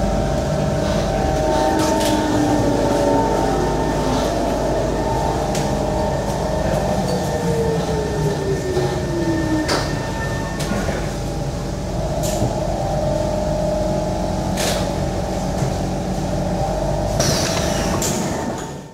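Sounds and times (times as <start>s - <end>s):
vehicle interior running noise: 0.0s - 9.0s.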